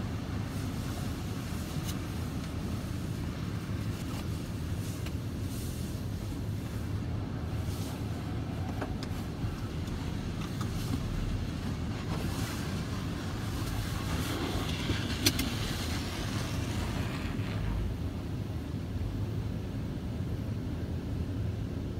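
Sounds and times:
steady low rumble: 0.0 - 21.9
cloth strips scrubbing windshield: 0.3 - 17.9.

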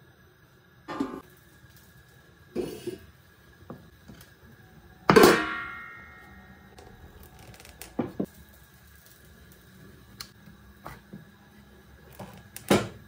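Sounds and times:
loud ringing clang: 5.1 - 6.7.

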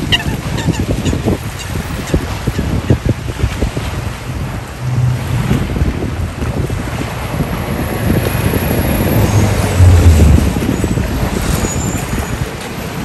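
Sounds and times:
wind buffeting microphone: 0.0 - 13.0
road traffic rumble: 1.3 - 13.0
low vehicle hum: 3.3 - 13.0.

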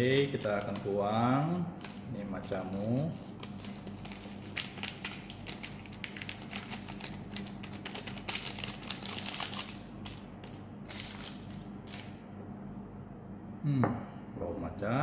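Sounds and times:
powder crackles and clicks: 0.0 - 1.0, 1.8 - 12.1
plastic sachet crinkling: 0.0 - 1.2, 1.8 - 12.2.

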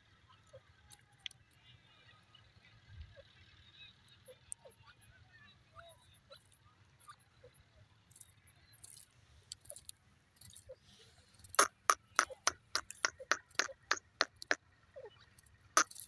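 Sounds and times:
francolin calling: 10.6 - 16.0.

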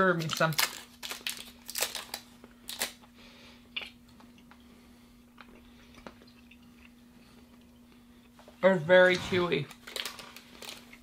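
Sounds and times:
paper wrapper crinkling: 0.0 - 3.0, 9.1 - 11.0
steady low hum: 0.0 - 11.0
faint chewing of candy: 1.2 - 8.6.

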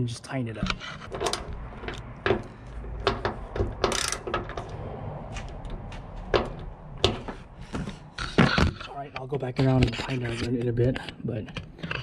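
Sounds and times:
ratchet rasp: 0.6 - 4.6
socket ratchet clicking: 1.1 - 4.5.

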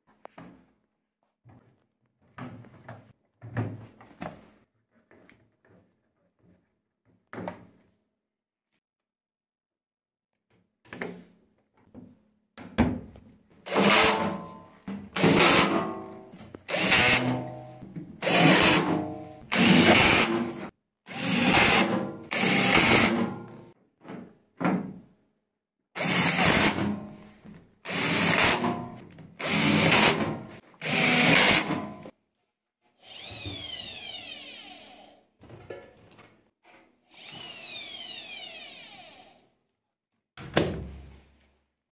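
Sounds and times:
drill driving screws into metal: 13.7 - 14.3, 16.7 - 17.4, 18.2 - 23.3, 26.0 - 27.0, 27.9 - 28.7, 29.4 - 31.9.

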